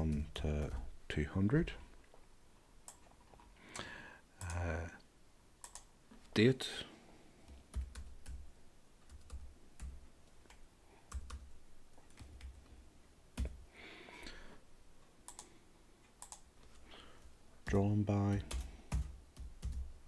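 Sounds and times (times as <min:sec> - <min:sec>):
keyboard keystroke clicks: 0:05.6 - 0:05.9, 0:15.3 - 0:15.5.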